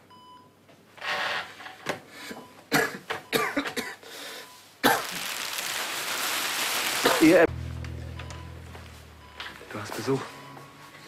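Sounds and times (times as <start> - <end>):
man coughing: 2.7 - 4.0.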